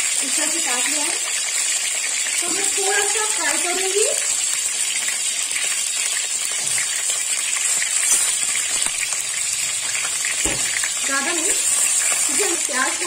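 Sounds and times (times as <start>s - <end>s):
onions sizzling in hot oil: 0.0s - 13.0s
short thump: 10.4s - 10.9s.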